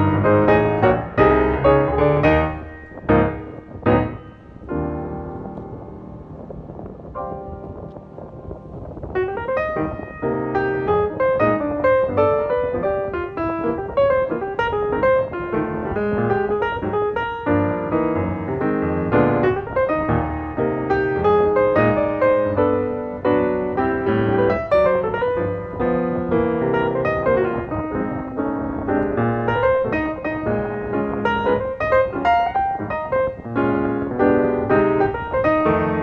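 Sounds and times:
piano music: 0.0 - 36.0.

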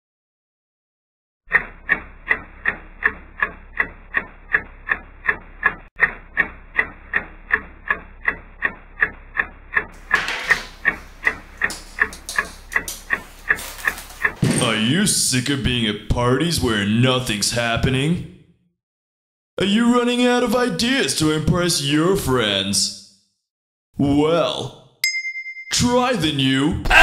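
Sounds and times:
clock ticking: 1.5 - 14.4.

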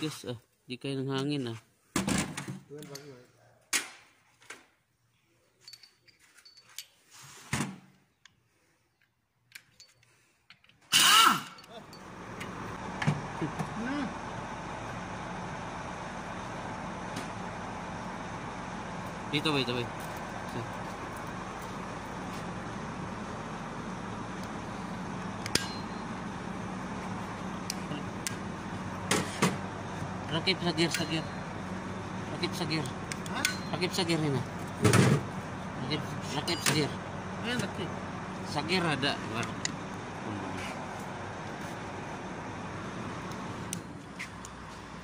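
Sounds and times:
workshop hum: 0.0 - 45.0
metallic clinks of tools: 5.6 - 7.0, 9.6 - 10.7, 11.5 - 12.1, 25.5 - 26.0, 33.2 - 33.8.

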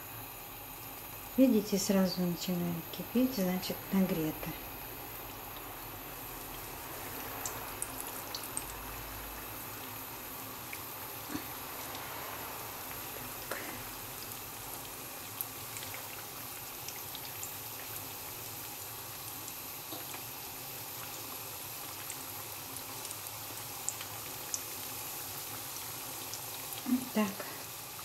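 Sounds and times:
hot oil sizzling in a pan: 0.0 - 28.0
oil popping and crackling: 5.2 - 12.0, 12.8 - 27.2.

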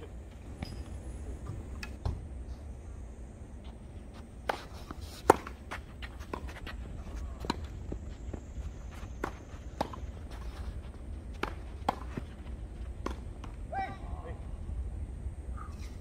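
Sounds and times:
footsteps and shoe scuffs on court: 3.5 - 13.6
racket hitting tennis ball: 4.4 - 7.7, 9.2 - 10.4, 11.3 - 13.6
tennis ball bouncing: 5.2 - 6.8, 7.4 - 7.7, 9.2 - 10.2, 11.3 - 13.6.

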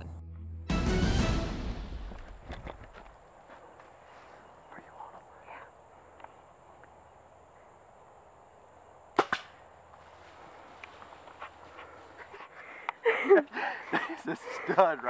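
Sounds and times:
bow shot cracks: 9.2 - 9.6.

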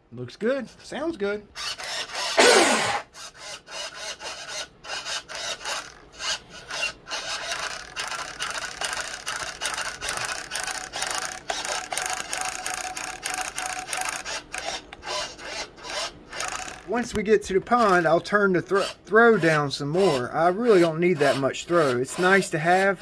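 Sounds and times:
servo motor buzzing: 1.6 - 17.0.

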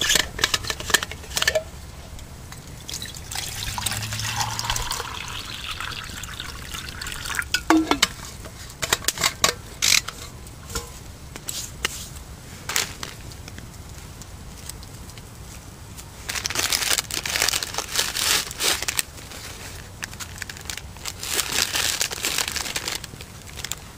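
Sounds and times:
water pouring into metal cup: 2.8 - 8.2
cup and bottle clicks and knocks: 3.0 - 8.3.

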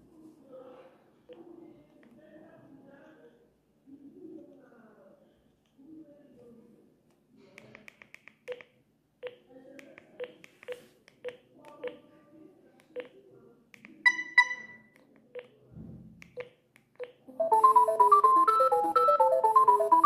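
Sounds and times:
short high electronic beeps: 14.1 - 14.9.

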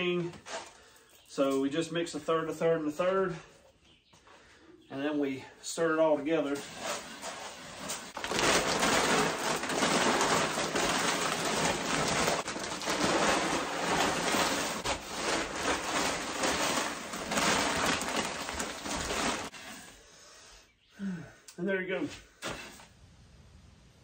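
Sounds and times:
grain poured into plastic bin: 7.8 - 19.5.

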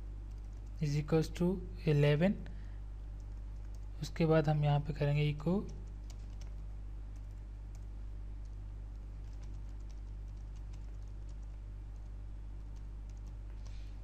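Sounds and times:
low electrical hum: 0.0 - 14.0
keyboard typing clicks: 0.3 - 0.8, 3.2 - 3.9, 5.7 - 6.6, 7.2 - 13.8.

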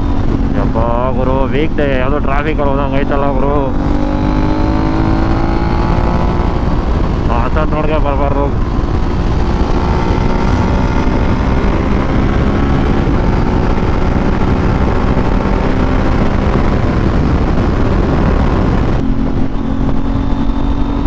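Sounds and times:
motorcycle engine cruising: 0.0 - 21.0
wind rush over microphone: 0.0 - 21.0.

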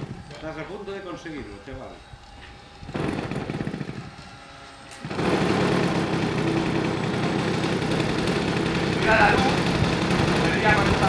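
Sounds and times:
model plane engine running: 0.0 - 11.0.

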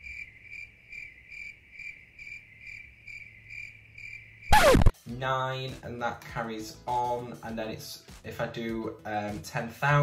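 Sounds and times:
high cricket chirps: 0.0 - 4.7
whoosh falling in pitch: 4.5 - 4.9.

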